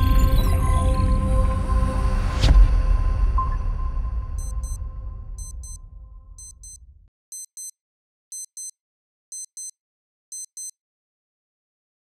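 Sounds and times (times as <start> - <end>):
wristwatch alarm beeping: 4.4 - 4.8, 5.4 - 5.8, 6.4 - 10.8.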